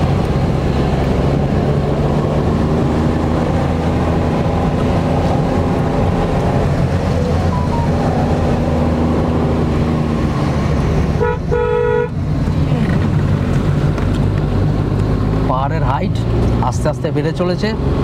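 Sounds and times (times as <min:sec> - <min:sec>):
car engine running: 0:00.0 - 0:18.0
road noise: 0:00.0 - 0:18.0.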